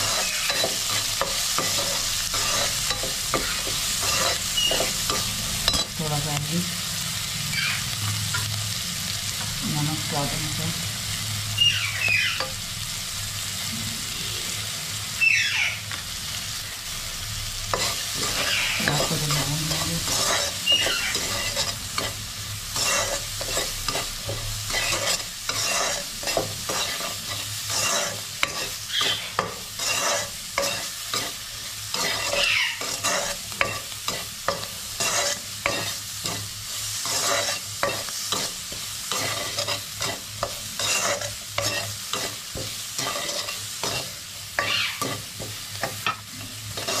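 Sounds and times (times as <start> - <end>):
spoon scraping a pan: 0.0 - 6.2, 11.6 - 12.6, 17.7 - 47.0
onions sizzling in oil: 0.0 - 47.0
metal squeaking on metal: 20.3 - 21.6.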